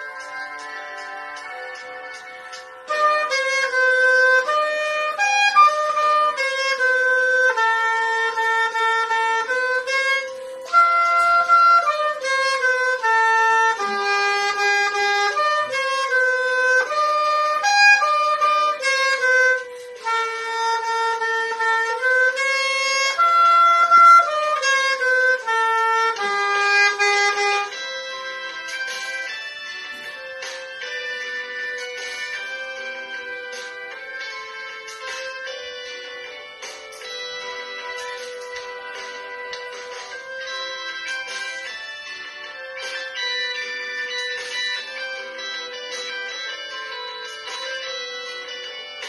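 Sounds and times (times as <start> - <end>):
oboe playing folk melody: 2.5 - 34.8.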